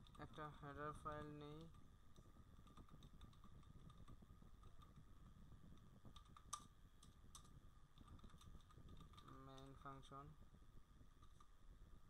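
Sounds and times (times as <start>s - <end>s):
faint electrical whine: 0.0s - 12.0s
computer keyboard keystrokes: 1.4s - 5.0s, 5.7s - 9.9s.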